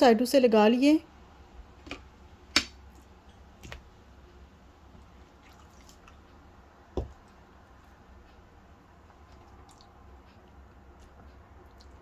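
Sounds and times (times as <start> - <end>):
faint low hum: 0.8 - 12.0
soft knock: 7.0 - 7.2.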